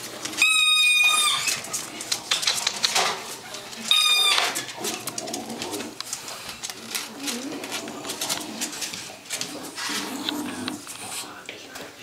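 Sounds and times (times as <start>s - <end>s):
puppies snuffling: 0.0s - 12.0s
soft rustling: 4.6s - 12.0s.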